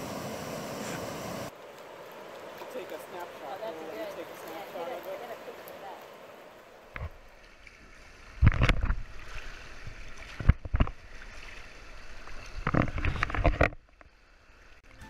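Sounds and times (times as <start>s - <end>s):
river rapids rushing: 0.0s - 6.9s
water splashing against camera: 0.8s - 14.1s.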